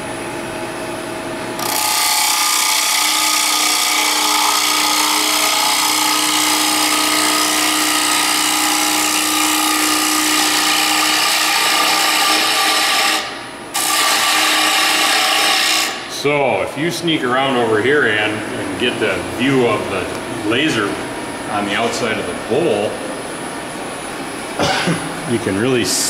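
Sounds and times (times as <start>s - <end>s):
lathe hum: 0.0s - 25.8s
wood being cut hiss: 2.7s - 16.0s.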